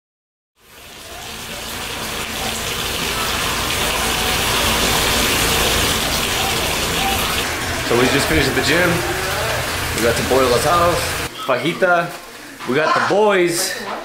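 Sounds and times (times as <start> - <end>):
water gushing into a bathtub: 0.6 - 11.3.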